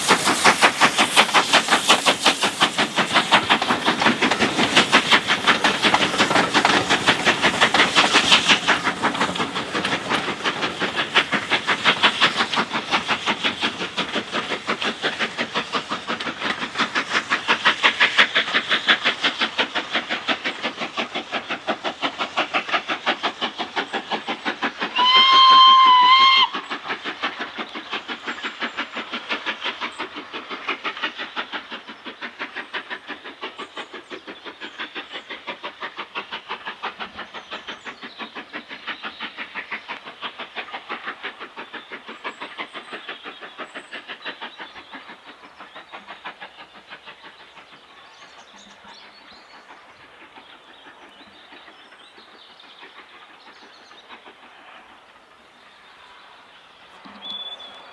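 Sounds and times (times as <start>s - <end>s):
steam locomotive chuffing: 0.0s - 57.9s
steam locomotive whistle: 24.9s - 26.6s.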